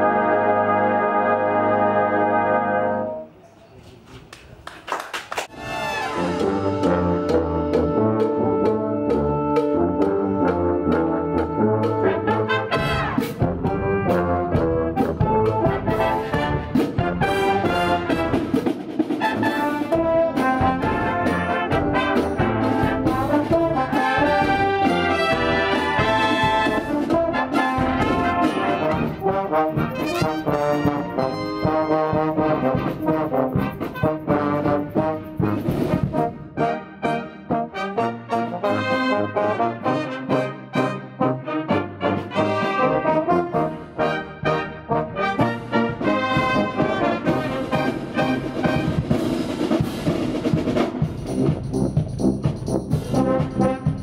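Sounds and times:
brass band playing: 0:00.0 - 0:03.4, 0:05.4 - 0:54.0
marching drums: 0:05.8 - 0:36.6, 0:45.2 - 0:54.0.

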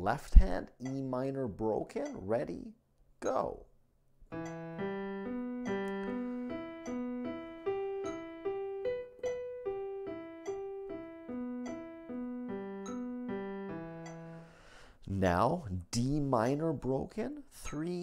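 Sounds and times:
digital piano broken chord: 0:04.3 - 0:14.5.

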